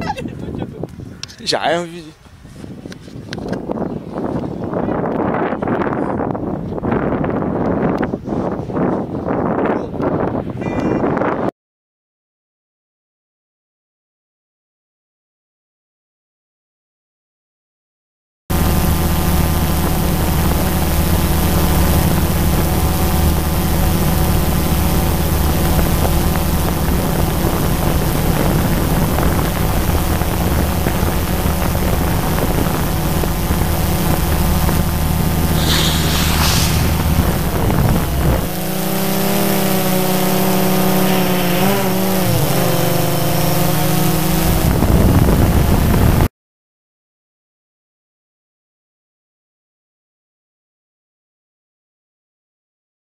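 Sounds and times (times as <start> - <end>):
drone propellers humming: 18.5 - 46.3.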